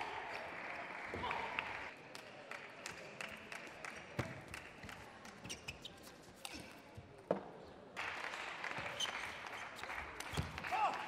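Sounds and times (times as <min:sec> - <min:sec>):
applause: 0:00.0 - 0:05.2, 0:08.0 - 0:11.0.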